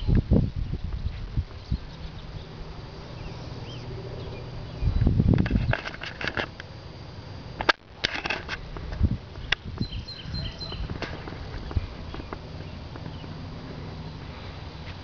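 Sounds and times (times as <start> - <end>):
low steady rumble: 0.0 - 15.0
footsteps on pavement: 8.7 - 15.0.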